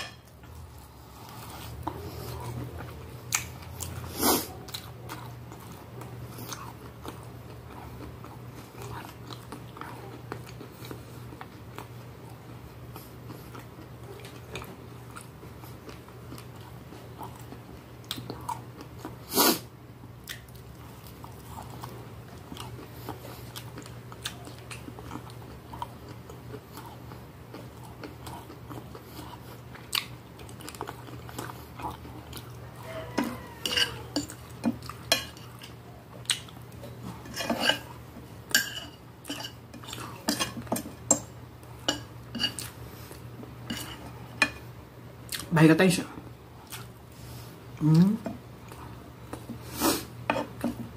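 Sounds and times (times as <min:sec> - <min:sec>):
chewing and mouth sounds: 0:00.3 - 0:19.3, 0:20.2 - 0:44.3, 0:45.2 - 0:45.5, 0:46.6 - 0:47.1.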